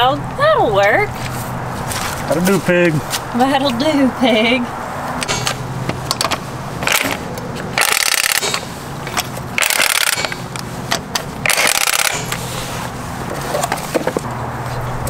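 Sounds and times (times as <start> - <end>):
impact wrench bursts: 5.2 - 12.6.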